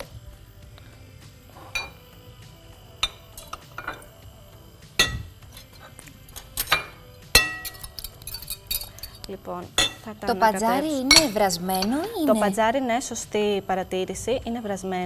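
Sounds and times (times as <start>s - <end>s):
ceramic dishes clinking on glass bowl: 1.7s - 2.0s, 6.6s - 9.2s, 9.8s - 10.1s, 11.1s - 12.0s.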